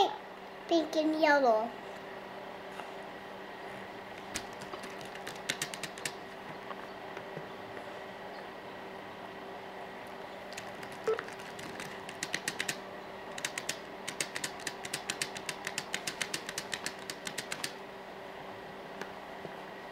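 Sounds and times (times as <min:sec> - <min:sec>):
faint steady hum: 0:00.0 - 0:19.9
laptop keys tapping: 0:04.2 - 0:06.2, 0:10.5 - 0:17.8.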